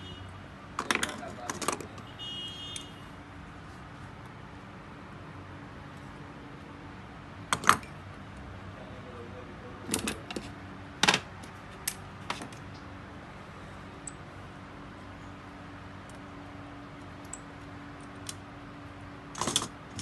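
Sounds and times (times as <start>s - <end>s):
small metal clicks and clinks: 17.0s - 18.4s.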